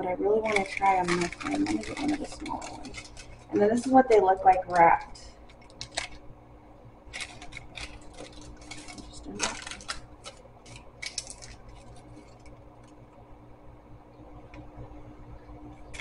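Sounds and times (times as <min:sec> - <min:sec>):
paper muffin liner crinkling: 0:00.4 - 0:06.2, 0:07.1 - 0:12.6.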